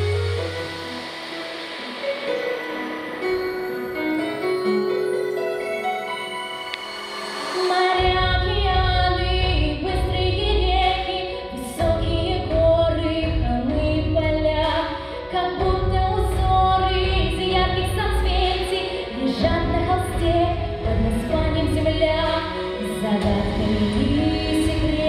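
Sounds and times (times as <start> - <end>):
instrumental music with heavy bass: 0.0 - 11.2
girl singing into a microphone: 7.6 - 25.0.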